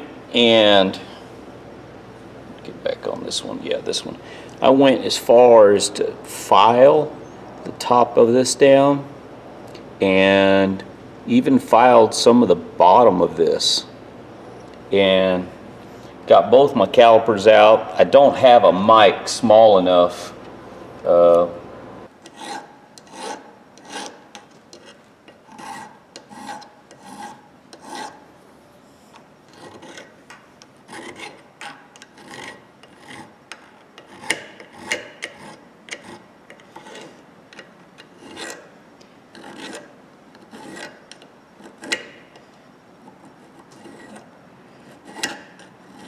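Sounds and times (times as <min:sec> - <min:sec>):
hand file rasping on metal: 0:22.2 - 0:28.2, 0:29.5 - 0:30.2, 0:30.9 - 0:33.4, 0:34.0 - 0:37.2, 0:38.1 - 0:38.7, 0:39.4 - 0:42.2, 0:43.1 - 0:46.0.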